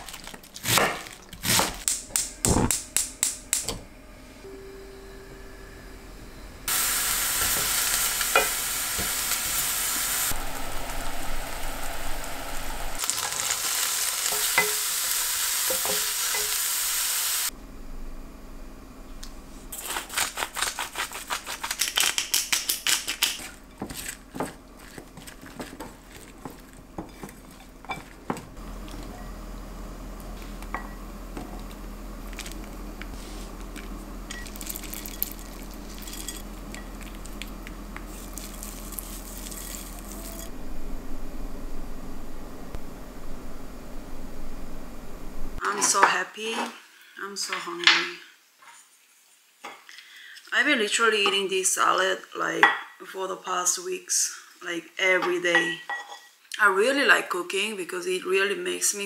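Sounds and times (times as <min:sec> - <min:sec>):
vegetables sizzling in frying pan: 0:06.7 - 0:17.5, 0:34.3 - 0:40.5.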